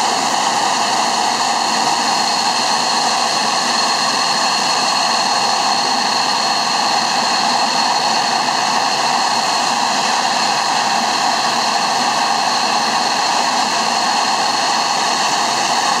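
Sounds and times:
jet engine running: 0.0 - 16.0.

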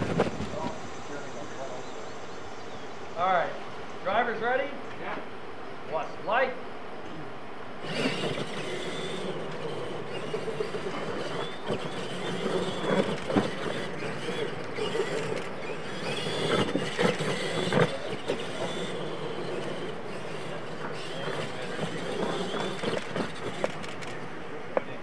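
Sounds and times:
tyres on gravelly dirt: 0.0 - 2.1, 7.8 - 25.0
high motor and gear whine: 7.8 - 25.0.

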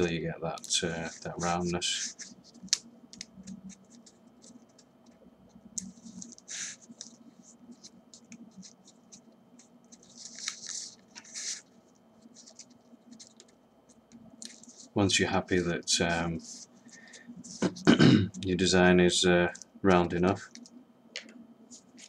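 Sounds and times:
paper rustling and crinkling: 5.8 - 17.8, 21.7 - 22.0.

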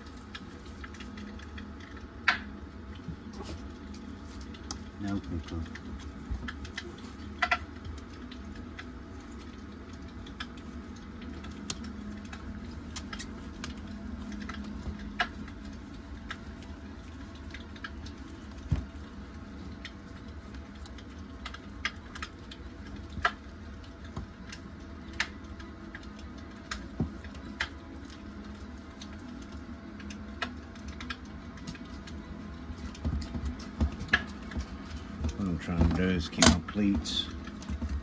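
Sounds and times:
low hum: 0.0 - 38.0.

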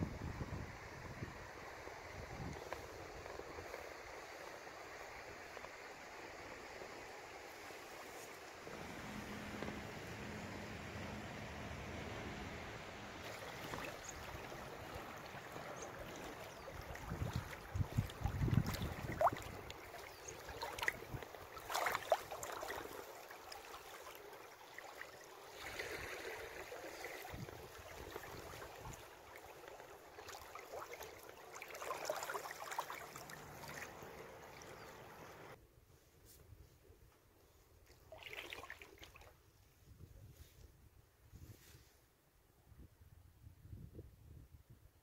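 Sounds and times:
water lapping against raft: 7.5 - 35.6, 37.9 - 39.4
small water splashes: 13.1 - 35.6, 37.9 - 39.4.

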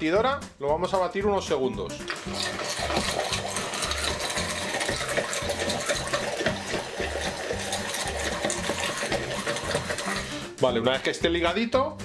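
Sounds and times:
immersion blender whirring: 2.1 - 10.5.

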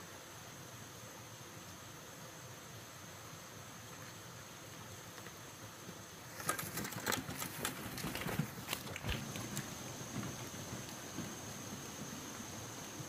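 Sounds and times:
steady rustle: 3.8 - 13.0.

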